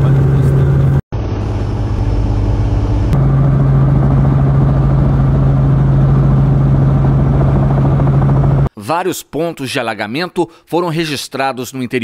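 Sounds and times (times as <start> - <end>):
helicopter engine and rotor drone: 0.0 - 8.7.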